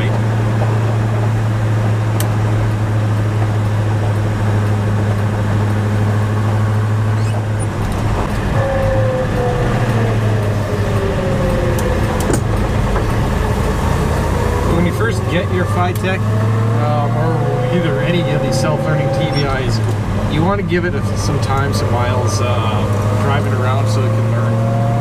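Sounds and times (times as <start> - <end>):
car engine deep exhaust drone: 0.0 - 25.0
high whine sliding down in pitch: 8.4 - 25.0.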